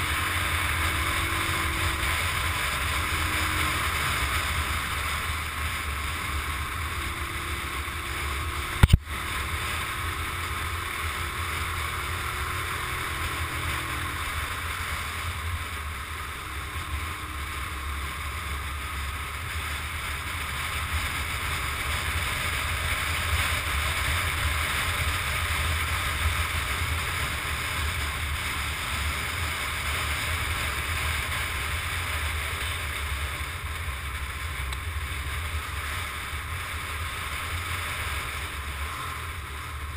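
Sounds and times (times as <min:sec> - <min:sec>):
motorcycle engine: 0:00.0 - 0:39.9.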